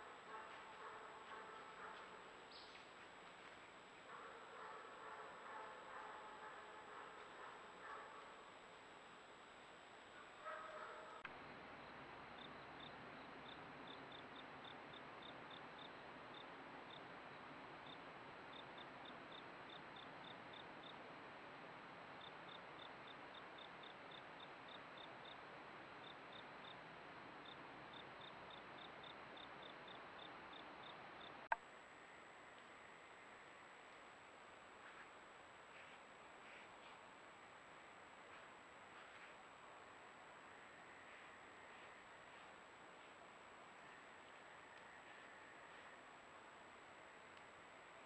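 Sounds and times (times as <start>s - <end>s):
faint steady hiss: 0.0s - 48.0s
insect chirps: 11.4s - 21.0s, 22.2s - 31.4s.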